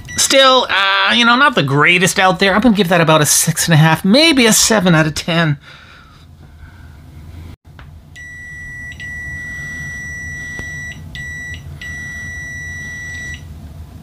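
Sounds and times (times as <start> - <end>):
high continuity beep: 8.2 - 13.4.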